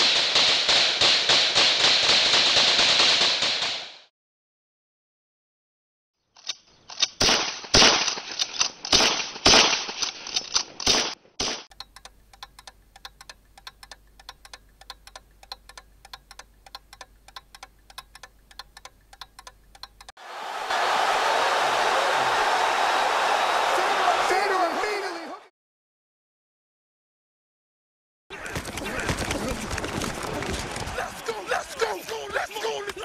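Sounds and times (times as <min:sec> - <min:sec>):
loud sharp cracks: 0:00.0 - 0:04.1, 0:07.1 - 0:11.7
rapid faint ticking: 0:11.7 - 0:20.1.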